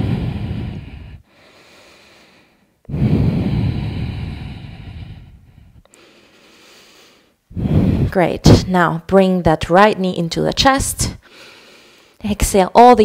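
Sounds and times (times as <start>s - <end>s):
woman breathing deeply: 0.0s - 8.2s, 11.2s - 12.2s.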